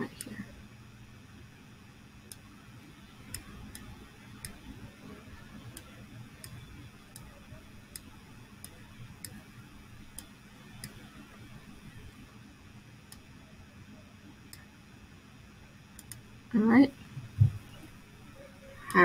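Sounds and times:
faint steady hum: 0.0s - 19.0s
computer mouse clicking: 3.3s - 4.6s, 5.7s - 7.3s, 7.9s - 9.4s, 10.1s - 11.2s, 16.0s - 16.2s.

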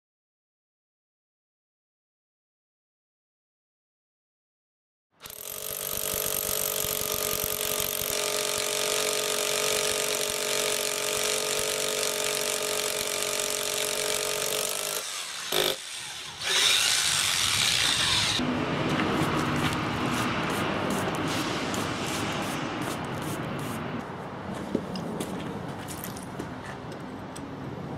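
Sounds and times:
hammer drill boring into stone: 5.2s - 18.4s.

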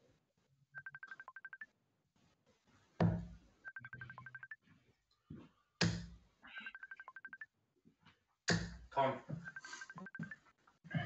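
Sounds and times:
rapid electronic beeps: 0.8s - 1.6s, 3.7s - 4.6s, 9.4s - 10.4s.

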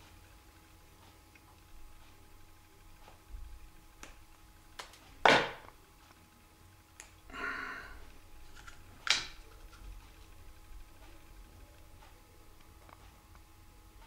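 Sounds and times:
fingers handling thin wire: 8.4s - 10.4s.

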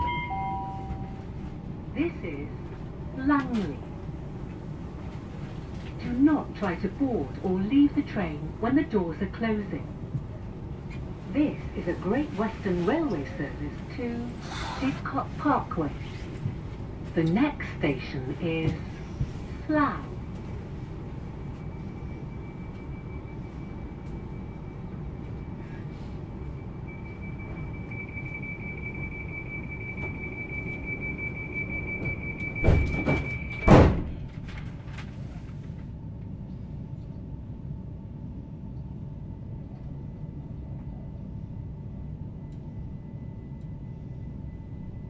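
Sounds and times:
door warning tone: 0.0s - 1.5s, 26.4s - 34.3s
train low steady hum: 0.0s - 45.0s
train doors shutting thuds: 32.0s - 34.4s.

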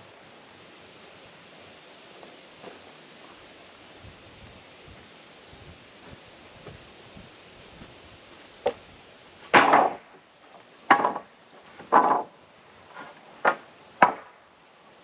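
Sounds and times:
boards rattling together: 9.5s - 10.2s, 10.8s - 12.4s, 13.0s - 14.3s
wooden battens knocking: 10.9s - 12.3s.

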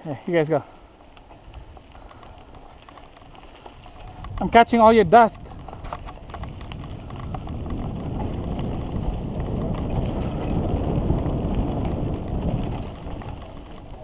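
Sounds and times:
bike tyres rolling on dirt: 0.0s - 14.0s
wind rushing over microphone: 3.6s - 14.0s.

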